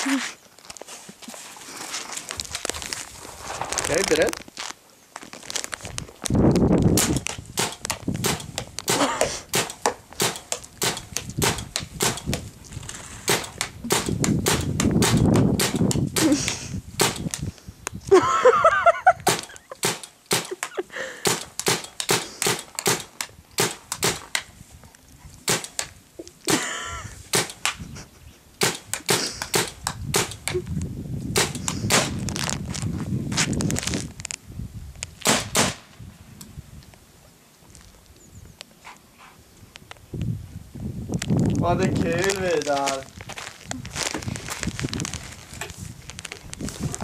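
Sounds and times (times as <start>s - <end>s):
paintball marker pops: 6.9s - 12.5s, 13.3s - 16.4s, 17.0s - 17.4s, 21.3s - 24.5s, 25.5s - 25.9s, 27.3s - 27.8s, 28.6s - 30.6s, 31.4s - 32.2s, 35.2s - 35.8s.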